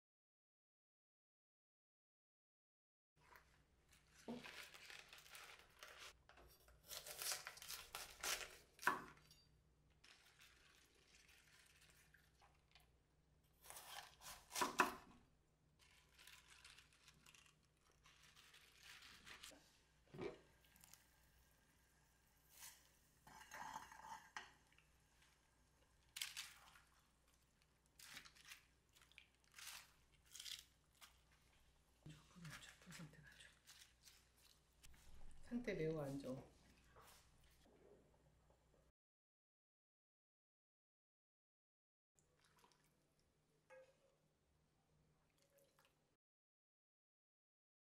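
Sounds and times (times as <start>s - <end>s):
leaves rustling and crackling: 4.1s - 6.1s, 15.8s - 19.5s
knife crunching through cabbage: 4.1s - 9.2s, 13.6s - 15.1s, 15.8s - 19.5s, 28.0s - 31.4s.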